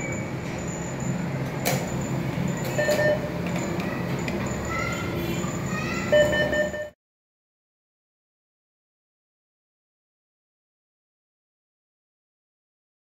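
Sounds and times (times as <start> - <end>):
mechanical hum: 0.0 - 7.0
short electronic beeps: 1.8 - 3.3, 6.1 - 7.0.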